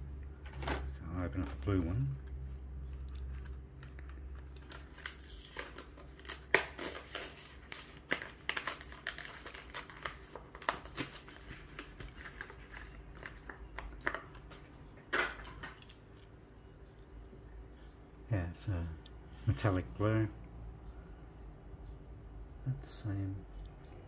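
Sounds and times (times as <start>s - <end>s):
plastic bubble crinkling: 3.8s - 14.5s.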